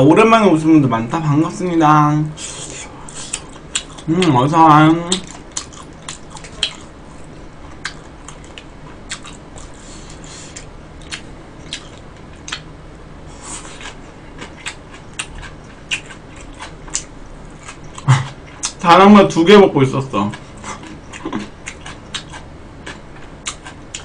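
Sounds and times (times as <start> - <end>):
close chewing: 3.1 - 12.6, 13.4 - 18.8, 20.3 - 24.0.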